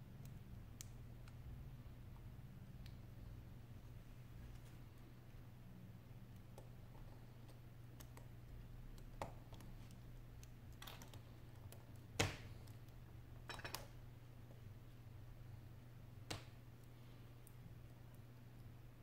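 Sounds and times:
tweezers clicking on small parts: 0:00.1 - 0:01.4, 0:06.3 - 0:13.0.

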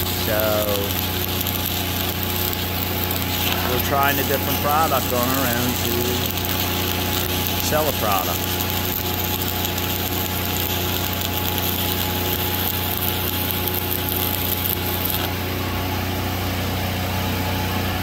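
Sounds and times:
welding arc hissing: 0:00.0 - 0:15.6
welding machine engine humming: 0:00.0 - 0:18.0.

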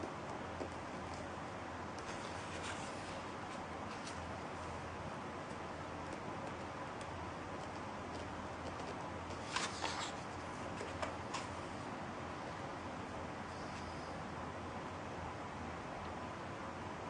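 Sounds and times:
faint steady hiss: 0:00.0 - 0:17.0
book page turning: 0:02.0 - 0:04.3, 0:08.2 - 0:11.6
light paper ticks: 0:05.4 - 0:10.2.

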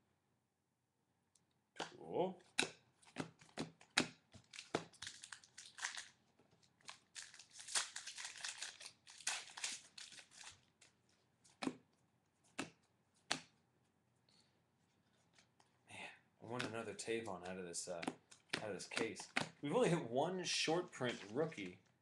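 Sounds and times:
cards handled with sharp clicks: 0:01.8 - 0:06.1, 0:16.6 - 0:19.6, 0:21.0 - 0:21.8
plastic wrapper tearing and crinkling: 0:04.4 - 0:11.0.

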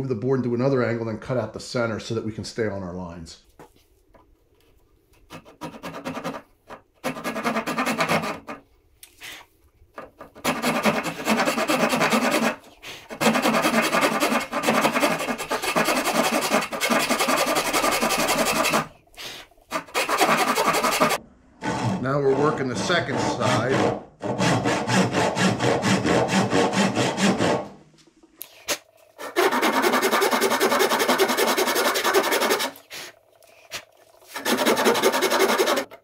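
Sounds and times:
hand saw cutting wood: 0:05.3 - 0:08.6, 0:10.1 - 0:19.0, 0:19.7 - 0:27.8, 0:29.2 - 0:32.8, 0:34.3 - 0:36.0.

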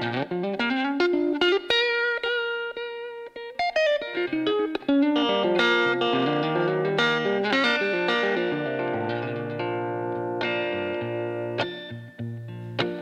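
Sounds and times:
electric guitar playing: 0:00.0 - 0:13.0.

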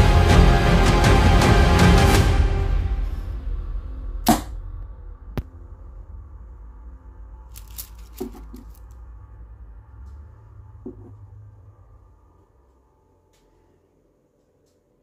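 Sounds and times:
background music: 0:00.0 - 0:05.5
crossbow shot swish and hit: 0:04.2 - 0:04.6.

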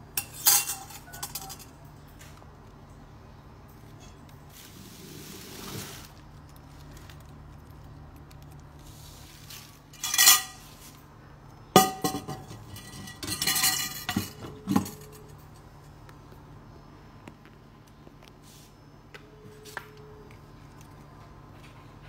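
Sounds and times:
metal pot clanking: 0:00.2 - 0:01.6, 0:10.0 - 0:10.6, 0:11.8 - 0:15.3.

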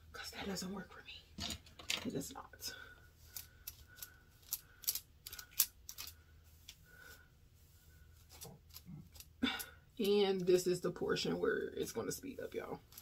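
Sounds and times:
nails clicking on hair: 0:03.3 - 0:06.2.

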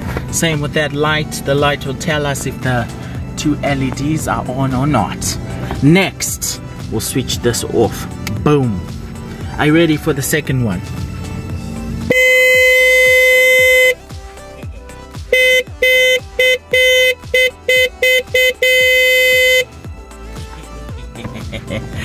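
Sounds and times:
electric car horn blasts: 0:11.9 - 0:14.1, 0:15.2 - 0:19.8.

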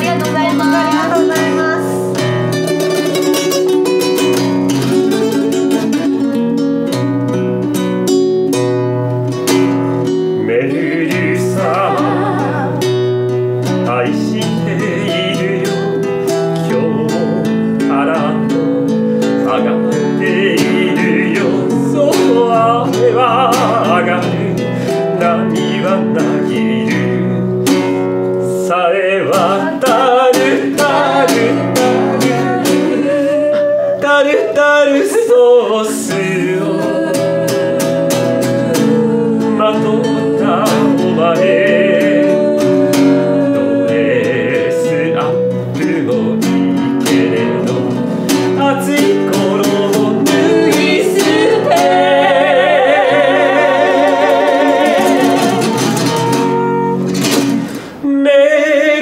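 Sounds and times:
voices singing: 0:00.0 - 0:03.2, 0:10.0 - 0:59.0
classical guitar playing: 0:00.0 - 0:59.0.

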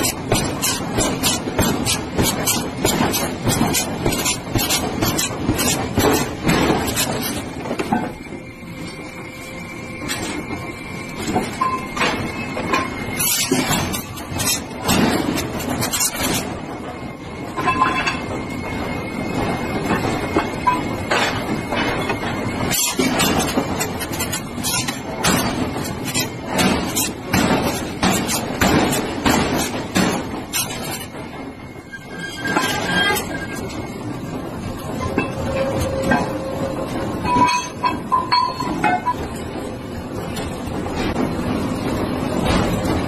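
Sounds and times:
metal clanking and scraping: 0:00.0 - 0:08.2, 0:11.2 - 0:16.7, 0:17.5 - 0:18.4, 0:19.8 - 0:31.3, 0:31.9 - 0:33.9, 0:34.8 - 0:39.7
forging machinery clattering: 0:00.0 - 0:08.3, 0:11.2 - 0:43.0.

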